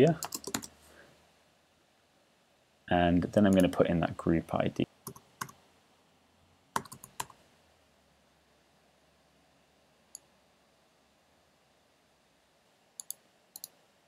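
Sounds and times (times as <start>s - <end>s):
computer keyboard key clicks: 6.8s - 7.4s.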